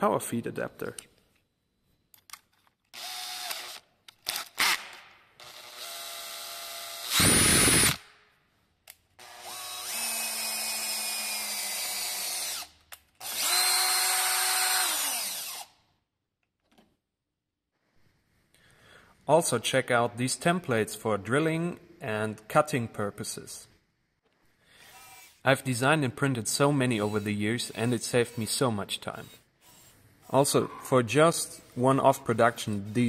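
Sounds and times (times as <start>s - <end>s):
cordless drill whining: 2.9s - 4.4s, 5.4s - 8.0s, 9.2s - 15.8s, 24.8s - 25.4s.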